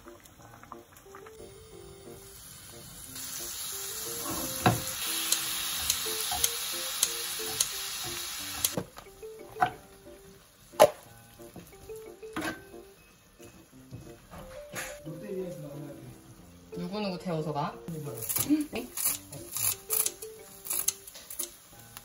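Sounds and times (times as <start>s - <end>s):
food sizzling in a frying pan: 0.0s - 22.0s
utensil and bowl knocking on pan: 4.2s - 5.0s
kitchen scissors snipping: 18.2s - 21.6s.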